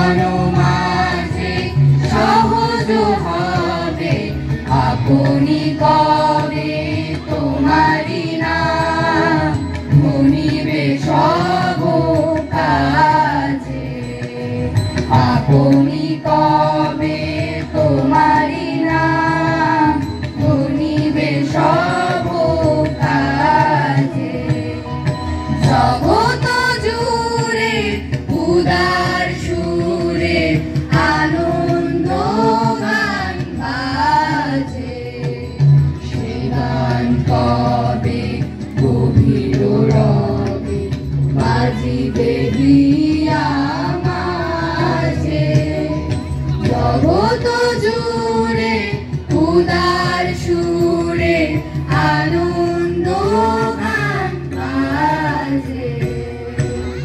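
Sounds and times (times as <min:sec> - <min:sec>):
students singing over loudspeaker: 0:00.0 - 0:57.0.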